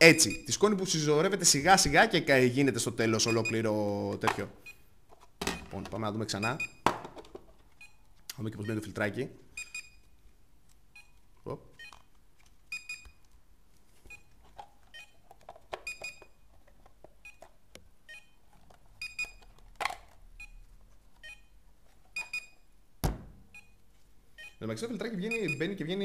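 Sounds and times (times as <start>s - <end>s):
plastic parts knocking: 6.8s - 7.6s
plastic parts clicking: 18.5s - 20.2s.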